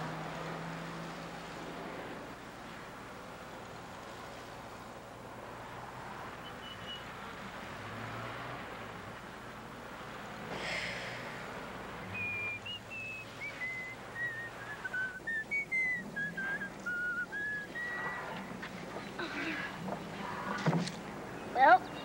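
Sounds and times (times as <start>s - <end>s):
person whistling a tune: 12.1s - 18.3s.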